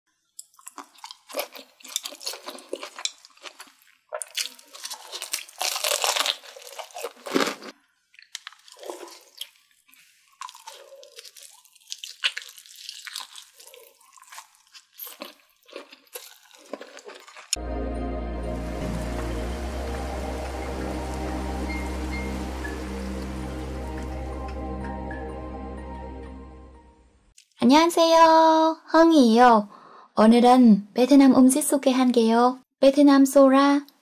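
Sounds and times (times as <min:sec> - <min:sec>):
woman biting and chewing: 0:00.4 - 0:17.6.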